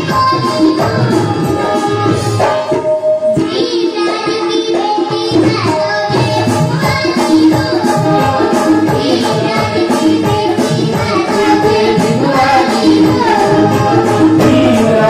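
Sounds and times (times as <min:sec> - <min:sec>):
girl singing into microphone: 0:00.0 - 0:15.0
harmonium: 0:00.0 - 0:15.0
keyboard playing: 0:00.0 - 0:15.0
tabla: 0:00.0 - 0:15.0.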